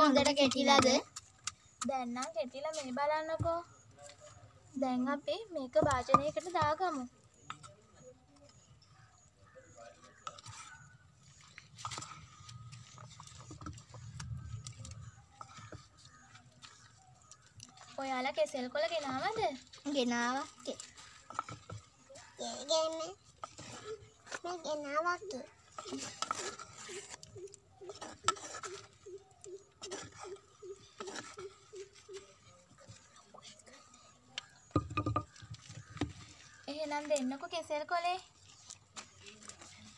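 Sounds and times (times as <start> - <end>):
spoon scraping wooden mortar: 10.0 - 39.9
clay bowl being handled: 25.7 - 36.6.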